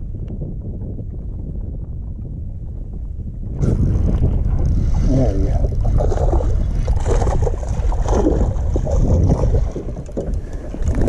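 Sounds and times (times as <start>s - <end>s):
wind rumbling on microphone: 0.0s - 11.0s
water splashing: 3.6s - 11.0s.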